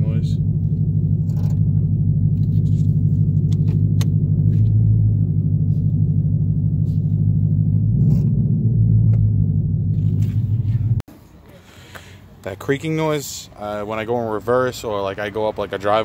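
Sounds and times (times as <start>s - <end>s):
car engine drone inside cabin: 0.0s - 11.1s.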